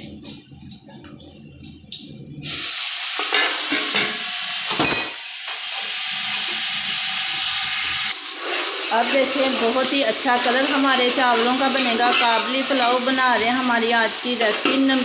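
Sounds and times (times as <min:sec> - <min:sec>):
water sizzling in hot oil: 0:00.0 - 0:15.0.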